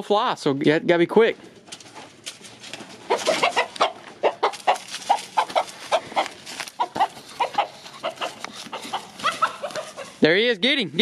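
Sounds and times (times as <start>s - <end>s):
rooster squawking in alarm: 3.1s - 10.2s.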